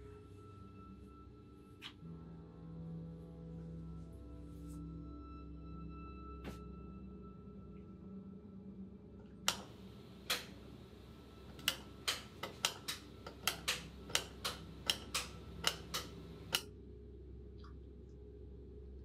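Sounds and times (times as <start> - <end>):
light switch clicking: 9.5 - 10.8, 11.5 - 16.7.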